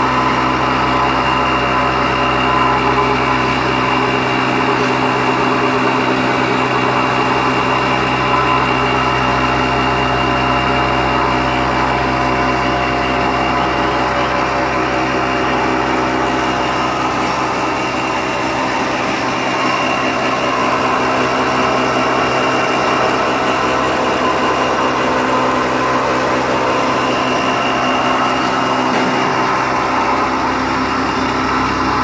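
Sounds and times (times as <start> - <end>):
milling machine running: 0.0 - 32.0.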